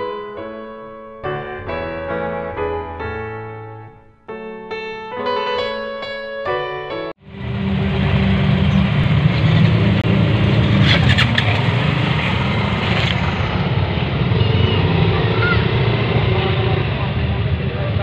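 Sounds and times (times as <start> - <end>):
scooter engines rumbling: 7.2 - 18.0.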